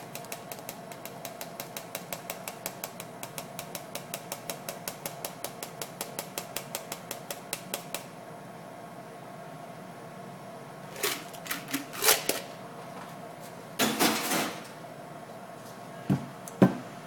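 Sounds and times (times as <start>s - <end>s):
shaker tin tapping on strainer: 0.0s - 8.1s
faint hum: 0.0s - 17.0s.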